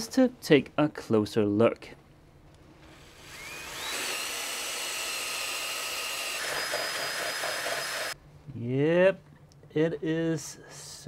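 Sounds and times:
power drill whining: 2.9s - 8.2s.

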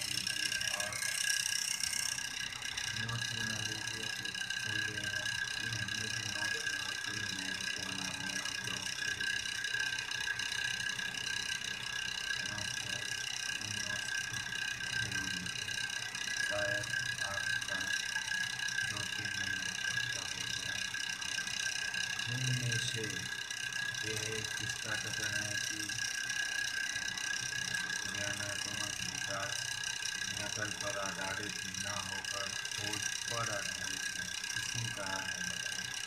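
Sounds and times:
high-pitched drone: 0.0s - 36.0s
faint low murmuring: 2.9s - 9.3s, 12.4s - 15.8s, 16.4s - 18.0s, 18.8s - 20.8s, 22.3s - 23.3s, 24.0s - 26.0s, 28.0s - 29.6s, 30.3s - 35.8s.

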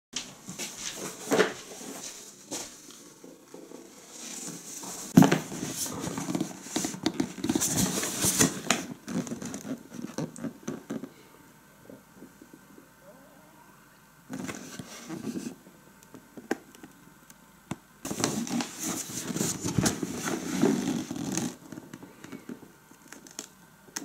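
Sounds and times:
cardboard rustling and crackling: 0.5s - 11.1s, 18.1s - 23.5s.

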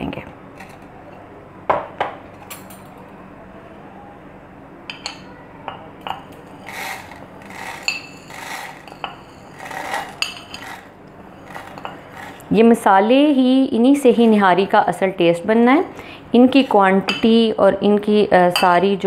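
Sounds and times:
metal spoon scraping ceramic plate: 6.5s - 12.5s.

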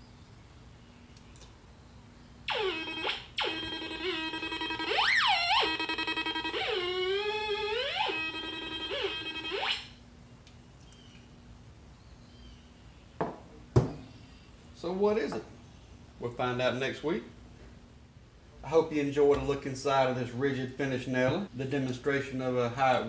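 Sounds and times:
warbling electronic tone: 2.5s - 10.0s.

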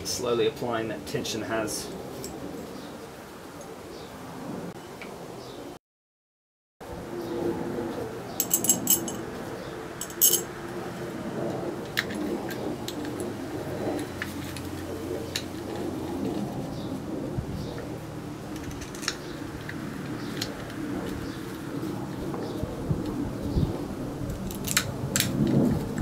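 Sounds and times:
metal parts clinking: 8.4s - 9.2s, 10.0s - 10.5s.

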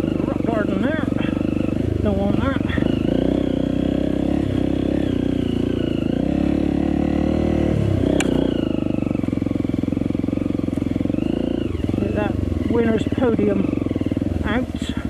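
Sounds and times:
motorcycle engine under load: 0.0s - 15.0s
sharp click: 8.2s - 8.4s.

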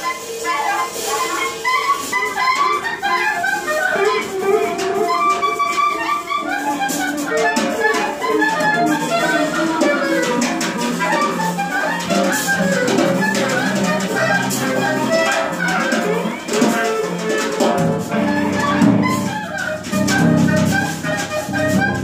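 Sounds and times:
wind instrument playing: 0.0s - 22.0s
drum kit with cymbals: 4.2s - 22.0s
electric guitar: 9.4s - 22.0s.

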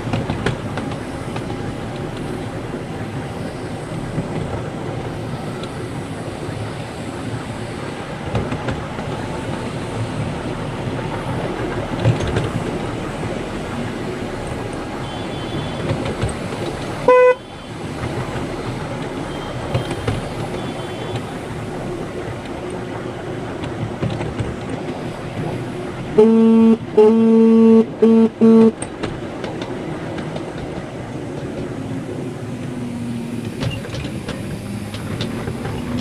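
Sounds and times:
train wheels rumbling on rails: 0.0s - 36.0s
train horn toots: 15.0s - 15.9s, 17.0s - 17.7s, 26.1s - 28.8s.

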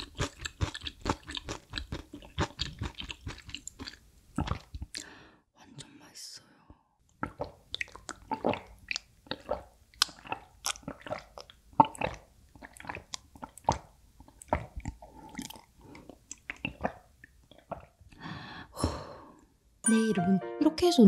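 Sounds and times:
gulping and swallowing water: 0.0s - 5.0s, 7.1s - 18.2s.

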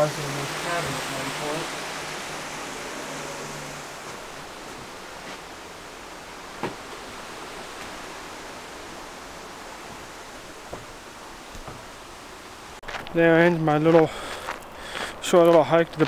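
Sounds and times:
waterfall and stream rushing: 0.0s - 15.8s.

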